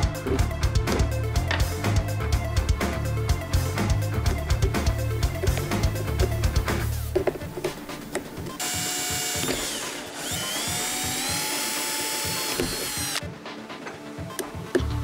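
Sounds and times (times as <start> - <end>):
cordless drill whining: 8.6 - 13.2.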